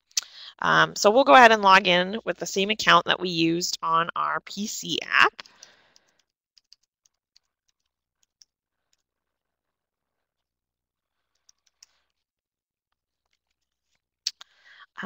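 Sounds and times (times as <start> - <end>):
keyboard and mouse clicks: 5.4 - 8.5.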